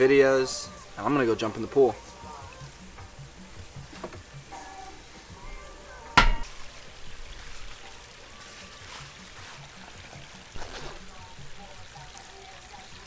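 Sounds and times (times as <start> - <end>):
trickle of pool water: 6.5 - 13.0.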